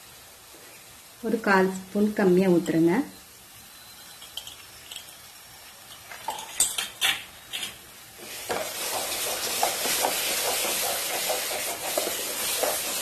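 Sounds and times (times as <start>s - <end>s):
halwa sizzling in pan: 0.0s - 13.0s
wooden spatula stirring and scraping: 8.2s - 13.0s.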